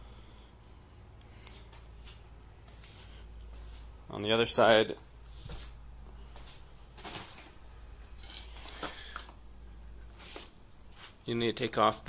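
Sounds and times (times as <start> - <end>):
steady low hum: 0.0 - 12.0
footstep scuffs and rustles: 1.2 - 11.3.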